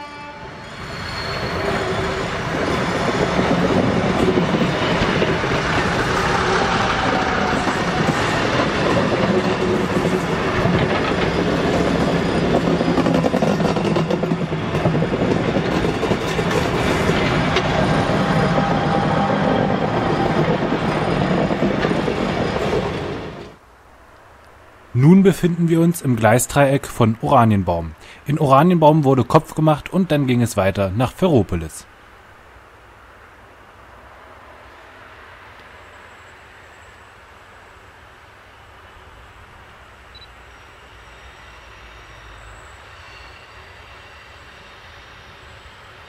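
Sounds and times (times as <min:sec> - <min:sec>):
train wheels rumbling on rails: 0:00.4 - 0:23.6.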